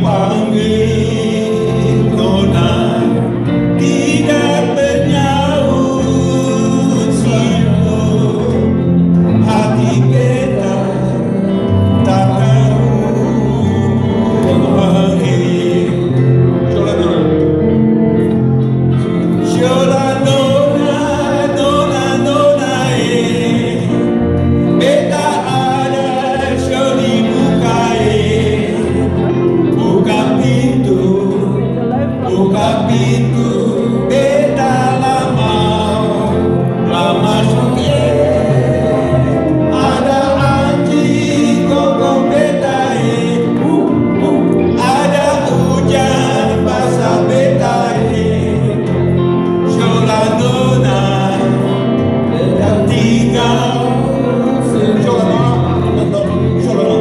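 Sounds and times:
electric guitars and bass: 0.0s - 57.0s
men singing together: 0.0s - 57.0s.

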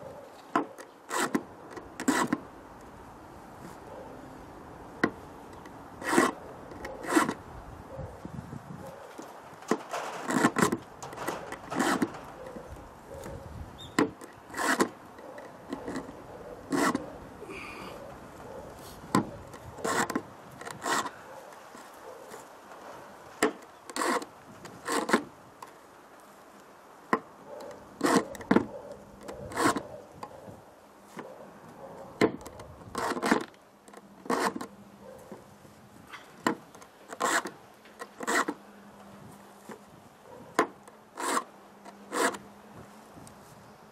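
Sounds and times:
file rasping on saw chain: 1.1s - 1.4s, 6.0s - 7.4s, 11.7s - 12.5s, 14.5s - 14.9s, 16.7s - 17.1s, 19.8s - 21.2s, 28.0s - 28.4s, 29.3s - 29.9s, 34.3s - 34.7s, 37.1s - 38.6s, 41.2s - 42.4s.

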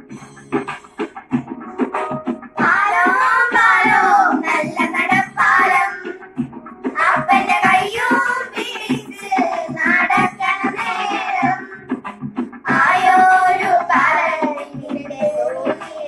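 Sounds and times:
steady percussion beat: 0.0s - 16.0s
girls singing folk song: 2.6s - 6.3s, 6.9s - 11.9s, 12.6s - 16.0s.

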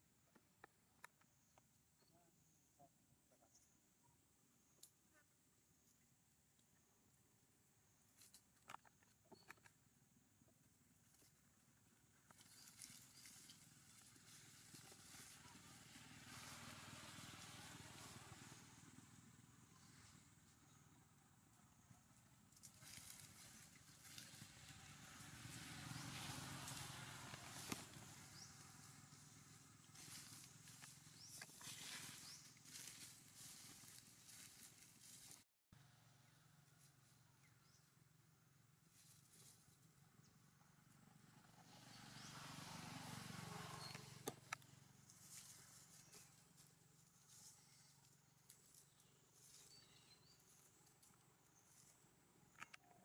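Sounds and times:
monkey walking on dry leaves: 12.3s - 17.5s, 22.5s - 35.4s, 45.0s - 52.0s
dry leaves crackling: 12.3s - 19.0s, 22.5s - 35.4s, 38.9s - 39.7s, 45.0s - 51.9s.

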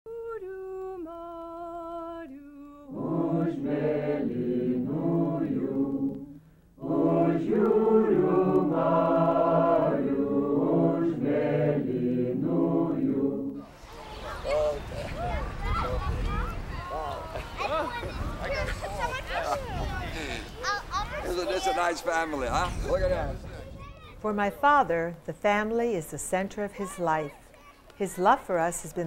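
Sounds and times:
choir singing: 0.1s - 13.9s.

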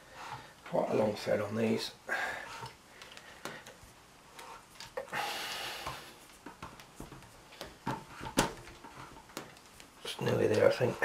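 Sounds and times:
soft air hiss: 0.0s - 11.0s
light clicks and handling noise: 2.6s - 11.0s.

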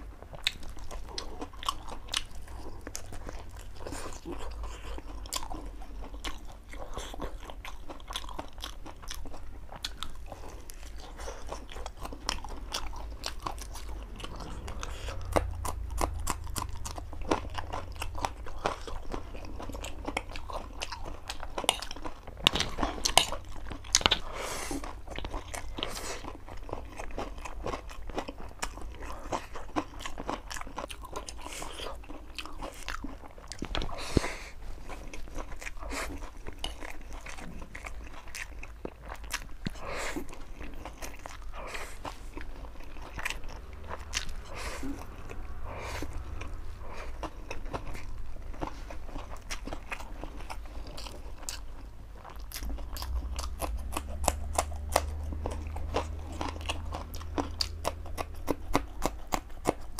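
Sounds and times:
man chewing and biting food: 0.0s - 59.9s
low hum: 10.0s - 21.5s, 39.7s - 58.4s.

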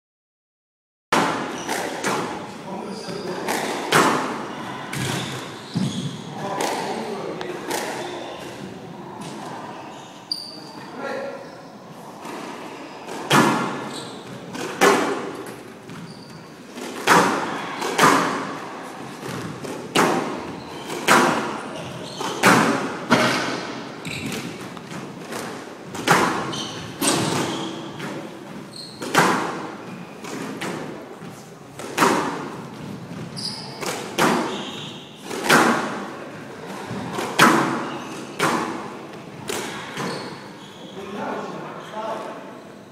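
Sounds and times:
squash ball hits echoing: 1.2s - 2.5s, 3.4s - 9.4s, 13.1s - 16.0s, 16.7s - 31.0s, 31.7s - 40.4s.

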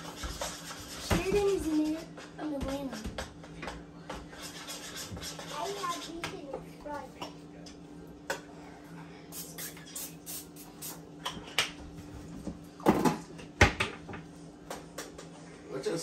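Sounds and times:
low appliance hum: 0.0s - 16.0s.

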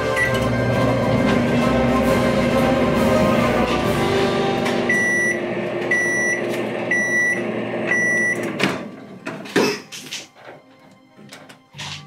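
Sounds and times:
appliance beeping: 0.0s - 9.2s
appliance hum: 0.0s - 9.6s.

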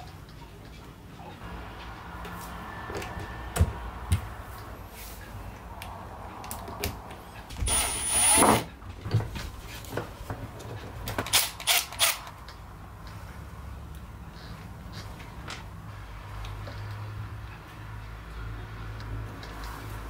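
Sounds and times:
cordless driver driving a screw: 7.7s - 8.6s
tools and parts clicking and knocking: 10.0s - 12.6s.

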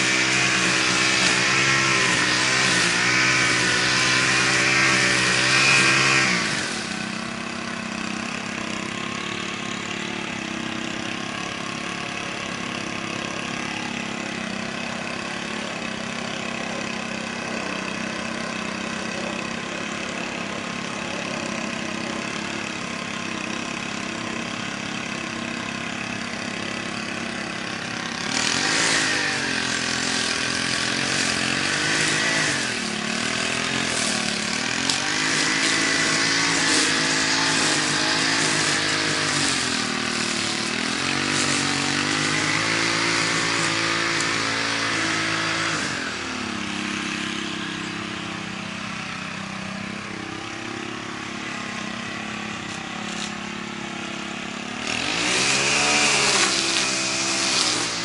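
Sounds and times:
string trimmer engine running: 0.0s - 58.0s.

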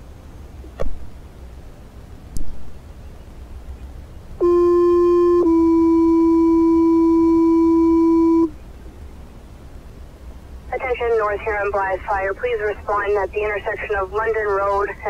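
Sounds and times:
two-tone paging tones: 4.4s - 8.6s.

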